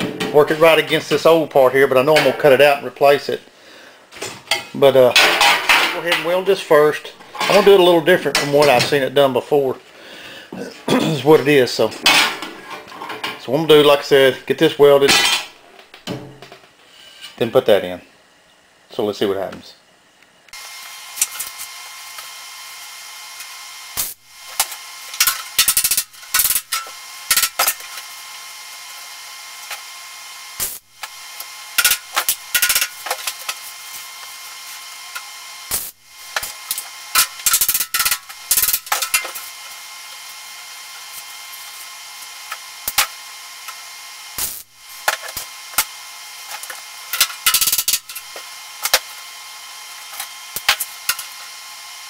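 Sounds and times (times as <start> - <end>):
welder humming: 4.7 - 16.6, 20.5 - 52.0
welding arc crackling: 20.5 - 52.0.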